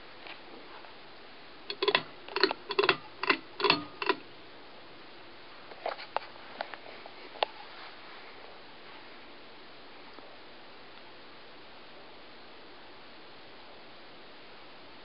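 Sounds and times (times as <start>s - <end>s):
sharp clicks and knocks: 1.7s - 4.2s.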